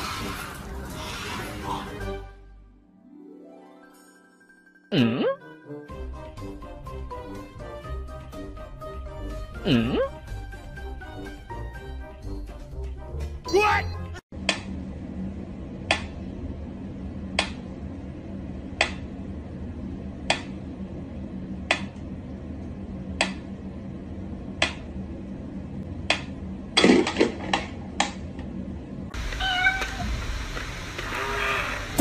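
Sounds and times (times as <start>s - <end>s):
cat meowing: 29.3s - 30.1s, 31.1s - 32.0s.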